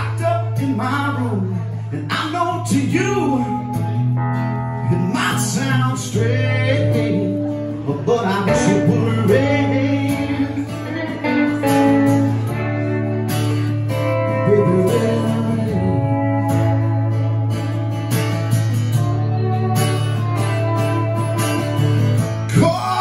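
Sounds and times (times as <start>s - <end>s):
man singing: 0.0s - 12.7s, 13.9s - 17.4s, 22.4s - 23.0s
electric guitar: 0.0s - 23.0s
strummed acoustic guitar: 0.0s - 23.0s.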